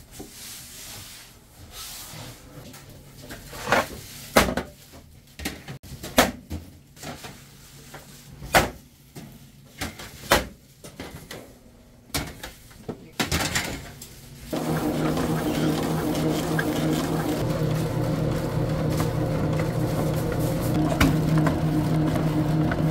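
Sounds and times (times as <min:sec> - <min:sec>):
steady machine hum: 0:14.5 - 0:22.9.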